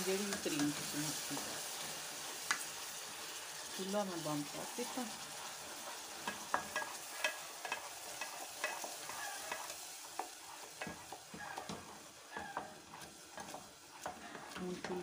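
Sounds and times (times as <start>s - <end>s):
faint sizzle: 0.0s - 15.0s
wooden spoon scraping a saucepan: 4.4s - 15.0s.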